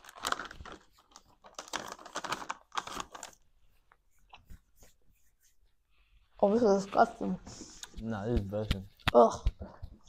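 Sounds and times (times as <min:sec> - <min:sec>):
plastic bag crinkling: 0:00.0 - 0:03.4.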